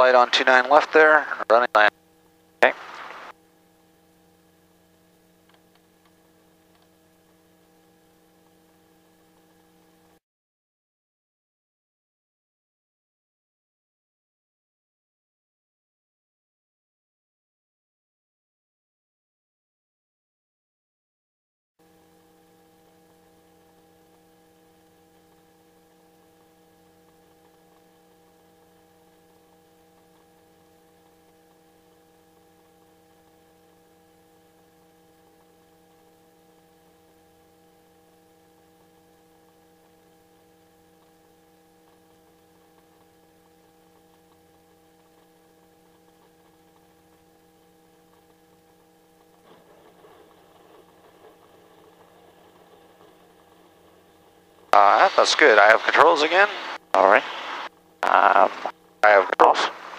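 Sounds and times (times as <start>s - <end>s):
faint electrical hum: 0.0s - 10.2s, 21.8s - 59.9s
light hiss: 2.6s - 3.3s.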